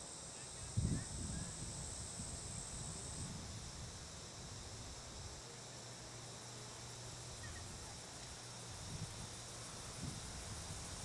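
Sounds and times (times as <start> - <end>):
high hiss: 0.0 - 11.0.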